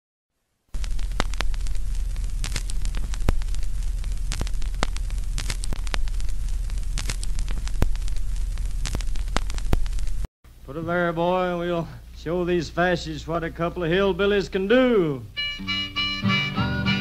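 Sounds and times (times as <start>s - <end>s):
low hum and hiss: 0.4s - 17.0s
sharp crackles and clicks: 0.7s - 10.3s.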